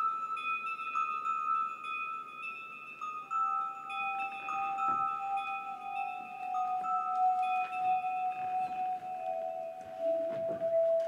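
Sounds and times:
music of long held tones: 0:00.0 - 0:11.0.

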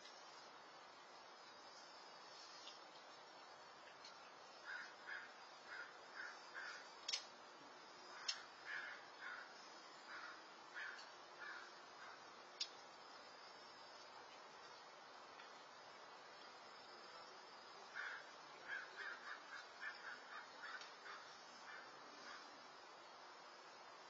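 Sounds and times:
bird calling faintly: 0:03.9 - 0:07.3, 0:08.0 - 0:12.8, 0:17.9 - 0:22.7
sharp ticks: 0:07.0 - 0:07.3, 0:08.2 - 0:08.5, 0:12.6 - 0:12.8.

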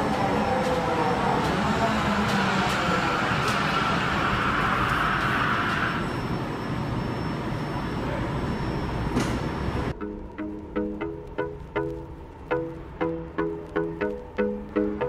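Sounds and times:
train rumble: 0:00.0 - 0:15.0
plucked-string music: 0:10.0 - 0:15.0.

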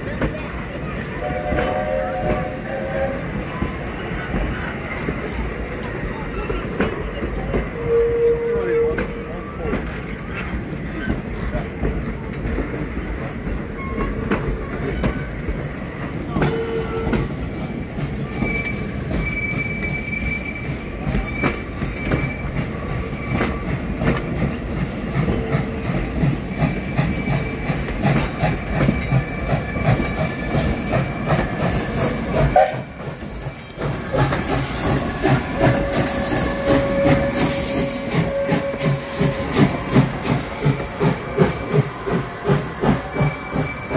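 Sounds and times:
steam locomotive exhaust beats: 0:00.0 - 0:43.9
steam hissing: 0:17.2 - 0:43.9.

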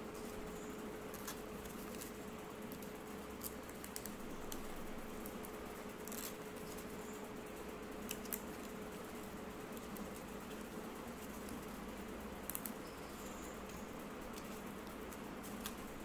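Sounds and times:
steady low hum: 0:00.0 - 0:16.0
sticker sheet crackling: 0:01.1 - 0:06.8.

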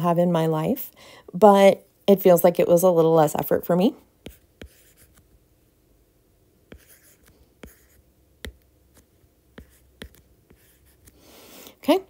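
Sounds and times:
stylus scratching on screen: 0:04.2 - 0:05.3, 0:06.7 - 0:11.2.

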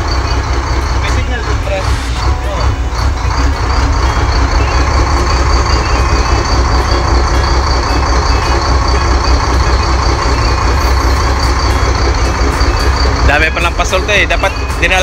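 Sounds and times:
boat engine running: 0:00.0 - 0:15.0.

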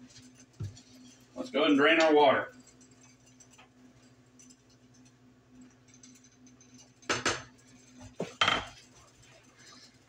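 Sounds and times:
kitchen utensils knocking cookware: 0:08.2 - 0:08.8.

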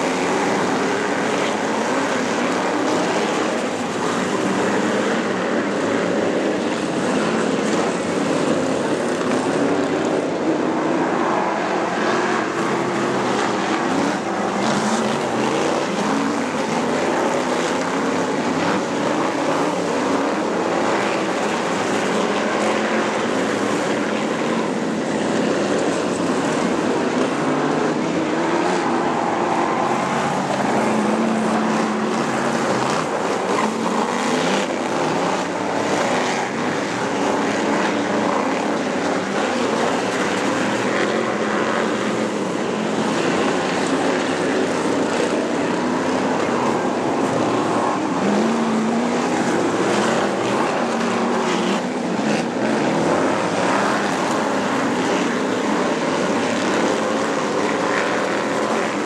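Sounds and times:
racing car engines passing: 0:00.0 - 0:59.0.

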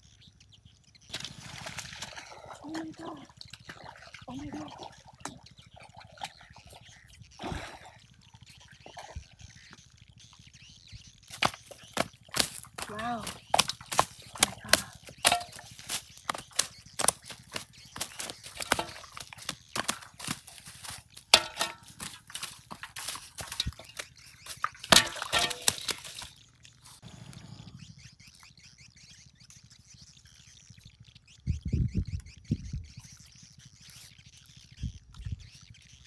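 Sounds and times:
fish flopping on dry leaves: 0:01.1 - 0:02.4, 0:11.3 - 0:26.3.

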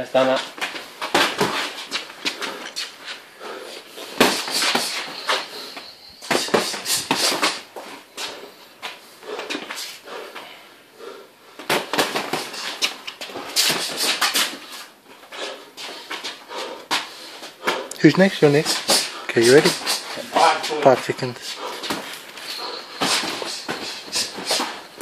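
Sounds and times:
boxing gloves punching: 0:01.0 - 0:02.8, 0:04.1 - 0:05.5, 0:06.2 - 0:07.8, 0:11.6 - 0:14.6, 0:21.4 - 0:25.0.

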